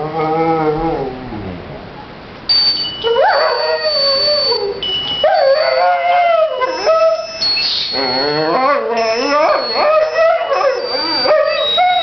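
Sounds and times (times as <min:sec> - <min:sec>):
dog howling: 0:03.0 - 0:12.0.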